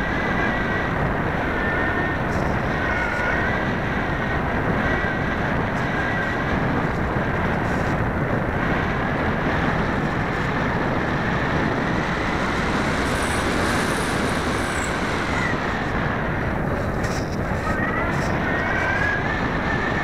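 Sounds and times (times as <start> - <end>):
airflow rushing over microphone: 0.0 - 20.0
electric motors whining: 11.0 - 16.0.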